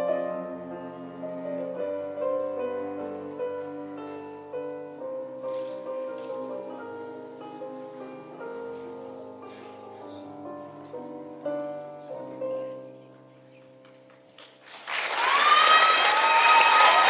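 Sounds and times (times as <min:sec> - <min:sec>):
slow piano piece: 0:00.0 - 0:14.8
applause: 0:14.4 - 0:17.0.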